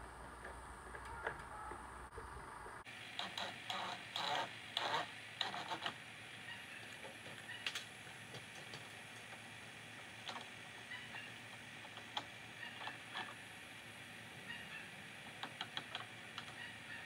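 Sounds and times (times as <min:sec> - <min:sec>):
sharp plastic ticks: 0:15.3 - 0:16.6.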